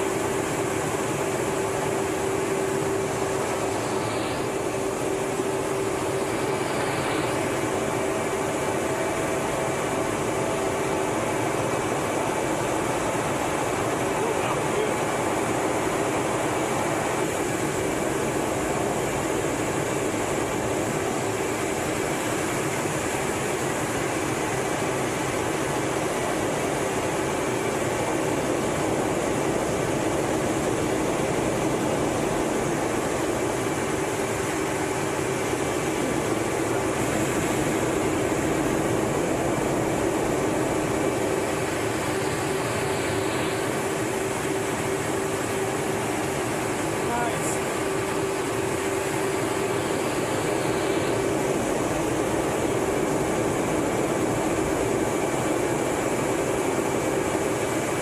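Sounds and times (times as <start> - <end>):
faint high whines: 0.0 - 25.0, 26.1 - 57.6
jet engine and airflow rush: 0.0 - 58.0
steady hum: 0.0 - 58.0.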